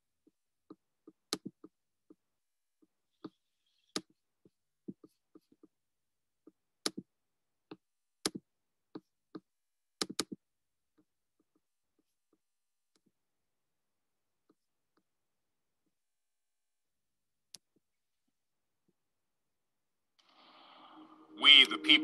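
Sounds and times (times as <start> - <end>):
mouse and keyboard clicks: 10.0 - 10.4.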